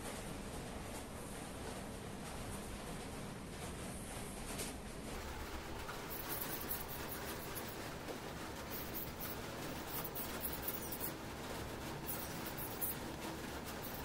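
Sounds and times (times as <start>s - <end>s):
brush scrubbing metal: 5.2s - 14.0s.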